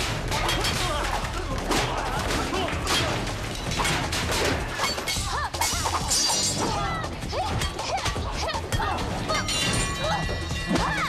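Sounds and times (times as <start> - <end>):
glass shattering: 0.0 - 6.9, 9.3 - 11.0
hits and crashes: 0.0 - 6.9
action music: 0.0 - 11.0.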